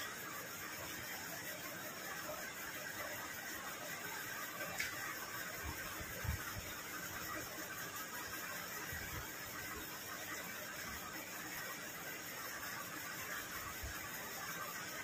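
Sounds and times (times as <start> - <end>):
room tone hiss: 0.0 - 15.0.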